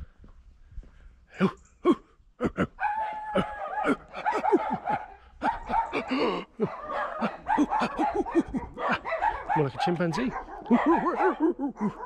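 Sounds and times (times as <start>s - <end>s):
man imitating animal calls: 1.4s - 9.1s, 10.2s - 12.0s.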